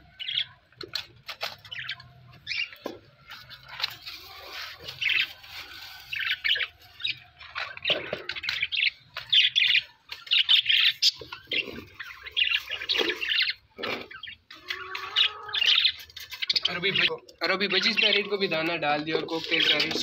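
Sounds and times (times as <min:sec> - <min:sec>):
budgerigars chirping: 0:06.1 - 0:18.8.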